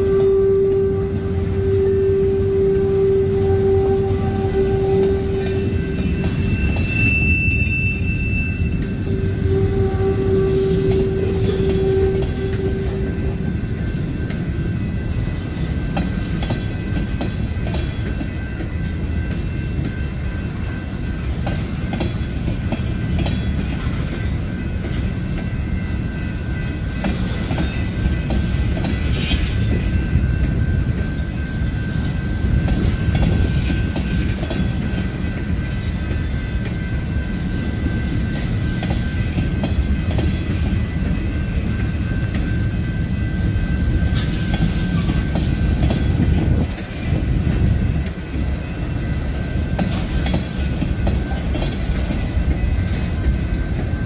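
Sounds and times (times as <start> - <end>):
steady high tone: 0.0 - 23.2
train wheels rumbling on rail: 0.0 - 54.0.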